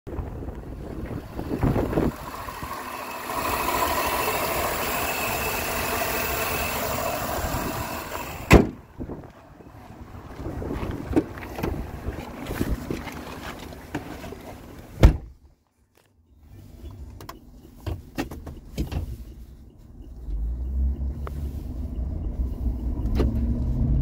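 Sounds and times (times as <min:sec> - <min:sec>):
pickup engine idling: 0:00.2 - 0:13.4.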